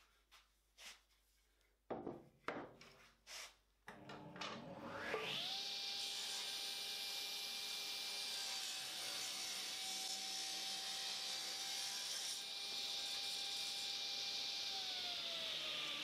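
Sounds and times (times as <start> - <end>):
table saw cutting wood: 3.9 - 16.0
saw blade spinning down: 4.2 - 5.7.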